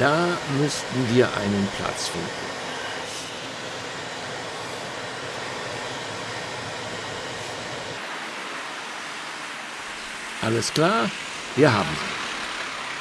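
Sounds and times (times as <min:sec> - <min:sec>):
fan-like hiss: 0:00.0 - 0:13.0
engine and tyre rumble: 0:11.2 - 0:13.0.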